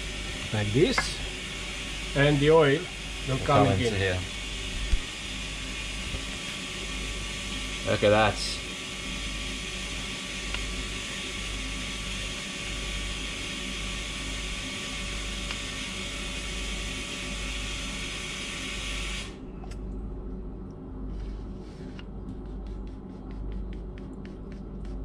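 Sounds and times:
generator humming: 0:00.0 - 0:11.6.

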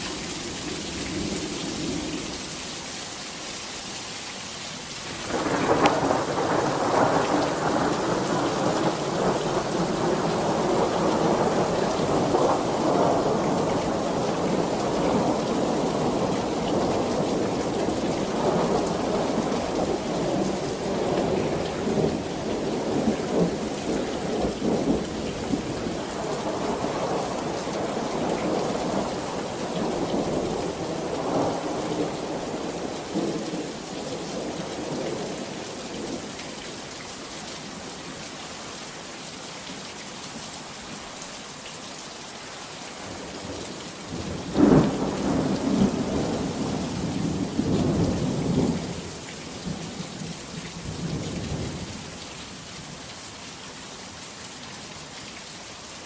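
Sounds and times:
heavy rain: 0:00.0 - 0:56.0
sharp thunderclap: 0:05.2 - 0:14.1
rolling thunder: 0:05.2 - 0:33.7, 0:44.1 - 0:49.0.

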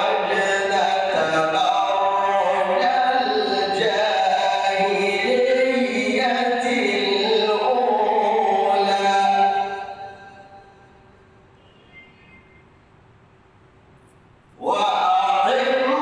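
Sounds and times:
man chanting melodically: 0:00.0 - 0:10.8, 0:14.6 - 0:16.0.

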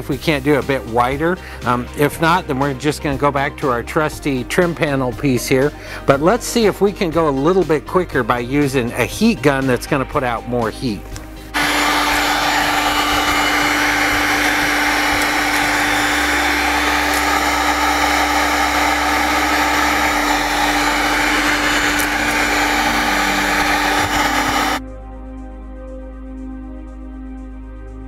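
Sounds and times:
heat gun blowing air: 0:11.6 - 0:24.8.

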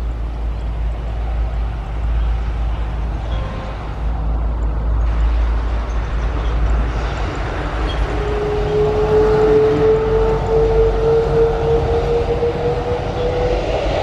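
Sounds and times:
jet engines rumbling: 0:00.0 - 0:14.0
jet engine howling tone: 0:05.0 - 0:14.0.

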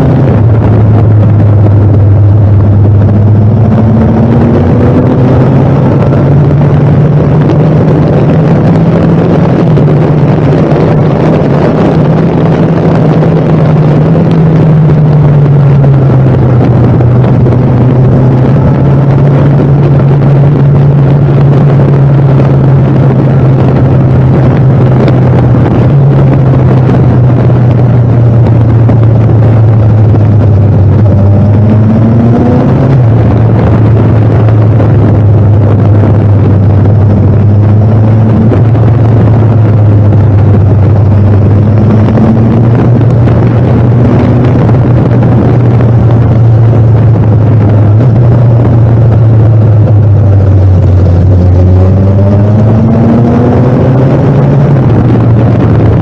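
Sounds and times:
rushing noise: 0:00.0 - 0:56.0
vehicle engine running: 0:00.0 - 0:56.0.

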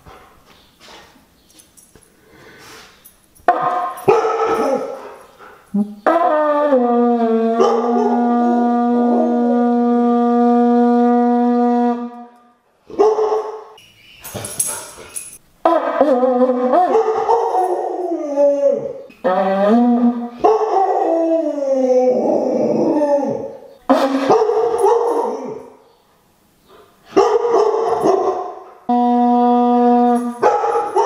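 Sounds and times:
dog howling: 0:05.8 - 0:12.0, 0:15.7 - 0:25.7
conch shell horn blown: 0:07.1 - 0:12.6, 0:28.9 - 0:30.6.

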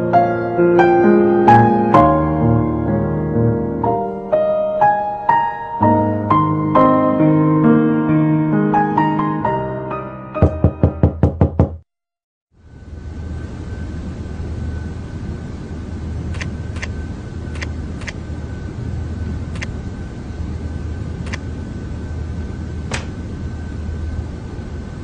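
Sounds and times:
room hum with high whine: 0:12.6 - 0:25.0.

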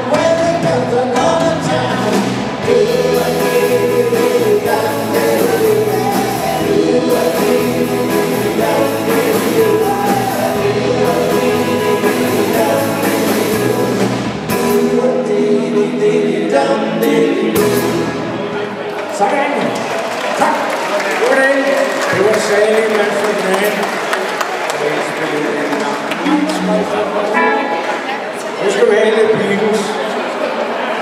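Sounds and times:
electric guitars: 0:00.0 - 0:15.5, 0:25.9 - 0:28.6
drum kit: 0:00.0 - 0:15.9, 0:16.5 - 0:18.4
person singing: 0:00.0 - 0:18.6.

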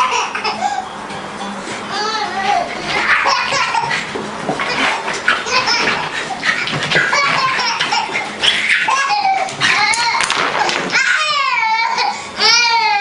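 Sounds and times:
baby laughing: 0:00.0 - 0:00.8, 0:01.9 - 0:10.7.

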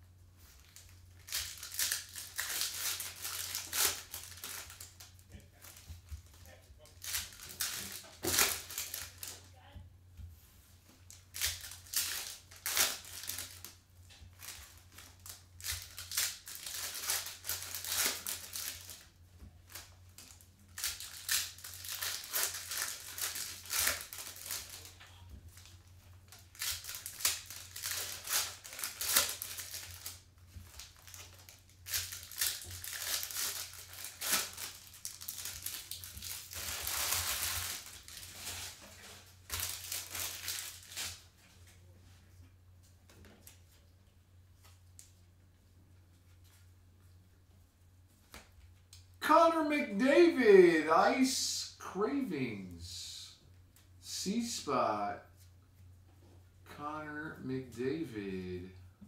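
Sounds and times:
foil wrappers crinkling and tearing: 0:00.5 - 0:09.5, 0:11.1 - 0:41.3.

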